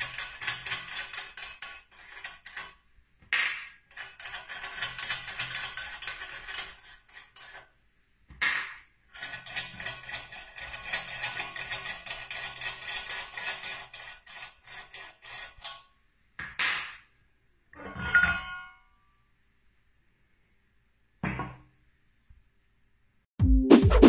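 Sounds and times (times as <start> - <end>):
metallic clicks and rattles: 0.0 - 2.8, 3.8 - 7.7.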